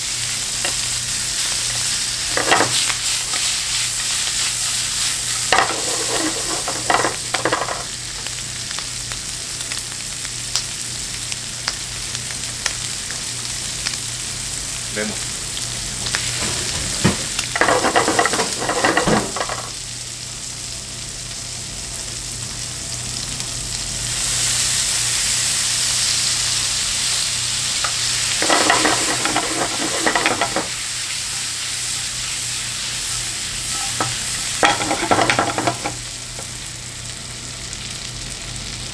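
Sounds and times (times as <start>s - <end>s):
food sizzling in frying pan: 0.0s - 38.9s
stirring in pan: 28.4s - 32.4s, 33.0s - 36.0s.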